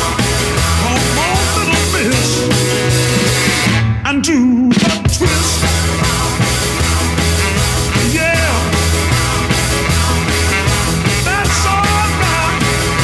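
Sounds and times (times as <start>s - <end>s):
rock music with fast drums: 0.0s - 13.0s.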